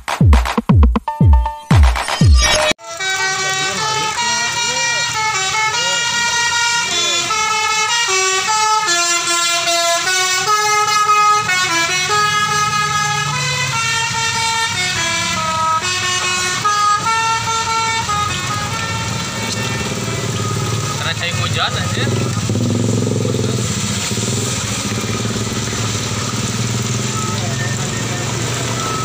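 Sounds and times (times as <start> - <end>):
musical air horn melody: 1.5 - 22.6
bus engine rumble: 3.3 - 29.0.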